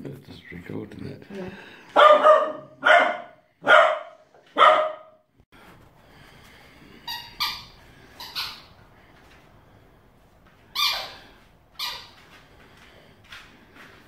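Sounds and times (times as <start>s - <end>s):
puppy barking: 1.9s - 5.2s
puppy squeaky yips: 10.7s - 11.2s, 11.8s - 12.2s.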